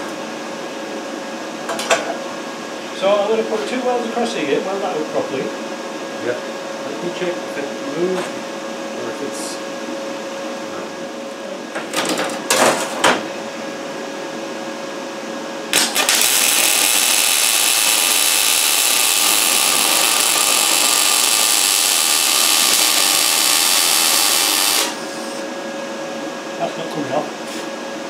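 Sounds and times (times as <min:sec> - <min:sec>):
welder arc crackling hiss: 0:15.7 - 0:25.4.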